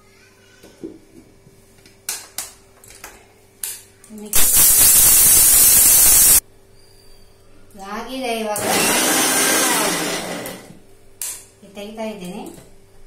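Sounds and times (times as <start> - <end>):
mixer grinder running: 4.4 - 6.4, 8.6 - 10.8.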